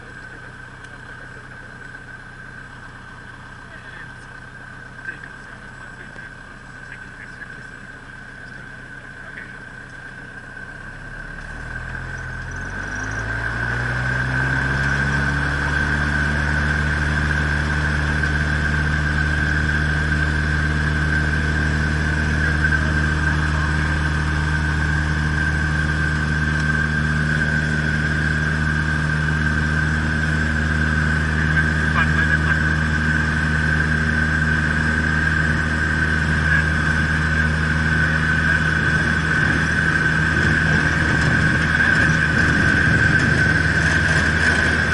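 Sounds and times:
propeller plane engine at full power: 0.0s - 44.9s.

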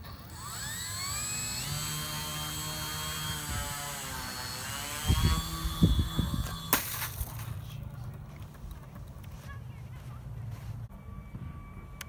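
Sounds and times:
model plane motor whining: 0.0s - 6.8s.

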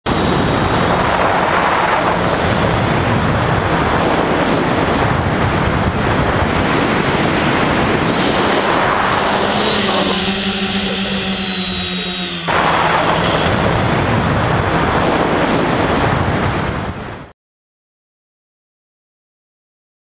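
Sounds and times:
wind buffeting microphone: 0.1s - 17.3s
electric motors humming: 6.6s - 15.6s.

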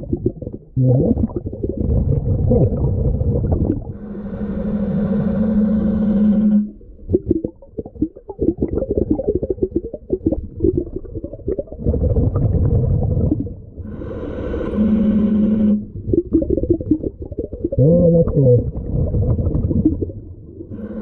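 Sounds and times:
bubbling regulator exhale: 0.0s - 21.0s
humming regulator inhale: 3.9s - 7.0s, 12.9s - 16.2s, 20.6s - 21.0s.

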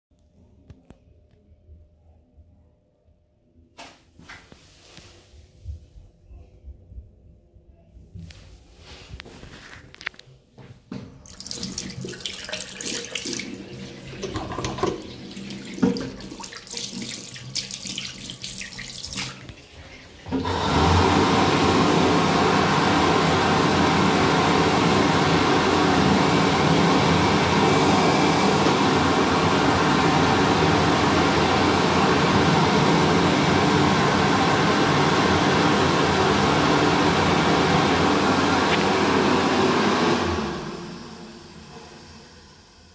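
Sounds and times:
hand dryer blowing: 11.3s - 42.9s
tap water splashing over hands: 15.7s - 19.6s.

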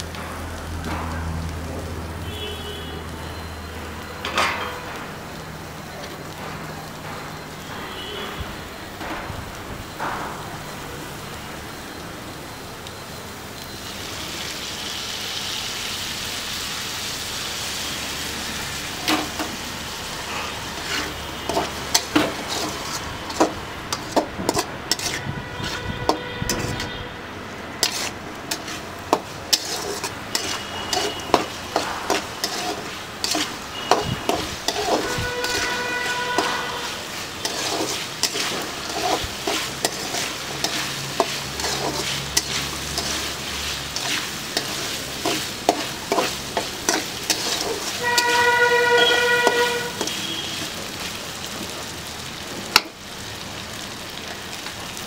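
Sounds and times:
shallots sizzling: 0.0s - 55.0s
metal spatula scraping a pan: 19.1s - 27.0s, 27.8s - 50.7s.

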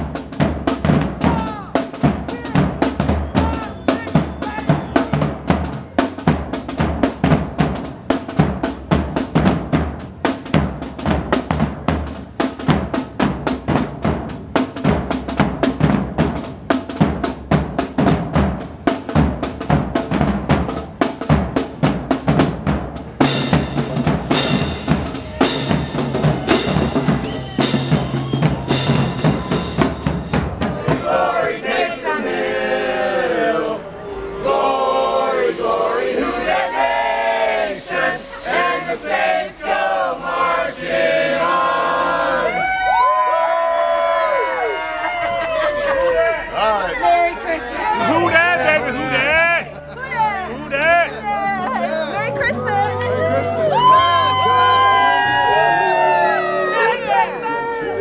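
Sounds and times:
marching drumline: 0.0s - 33.8s, 47.8s - 51.3s
group of voices singing: 30.6s - 42.6s
cymbal crashes: 33.5s - 42.5s.

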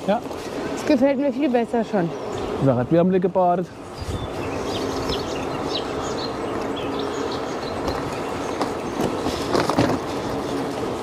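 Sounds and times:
bike tyres rolling: 0.0s - 11.0s
birds chirping: 0.0s - 11.0s
faint motor hum: 0.0s - 11.0s
wind noise: 3.8s - 6.5s.

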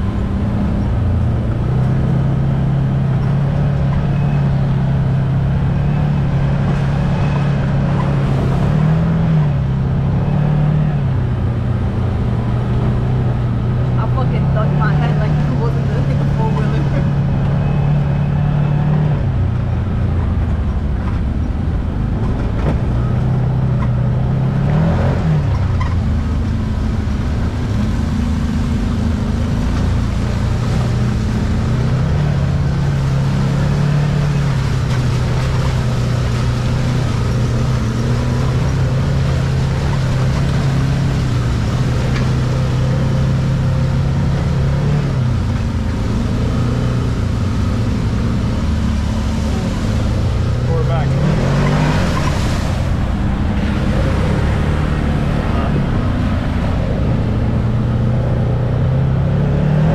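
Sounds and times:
constant low rumble: 0.0s - 59.9s
off-road vehicle engine running: 0.0s - 59.9s.

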